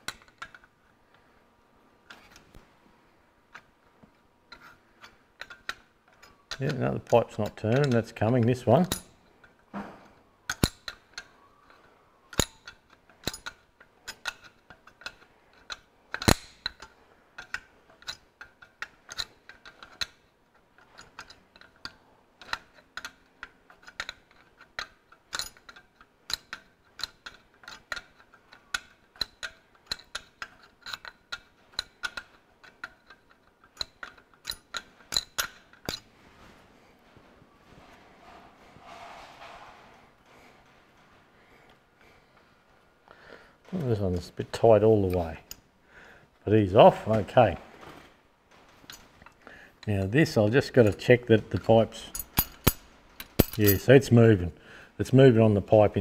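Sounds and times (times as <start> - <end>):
spanner clicking on metal nut: 4.5 - 9.2, 10.5 - 11.3, 12.3 - 36.0, 50.8 - 53.8.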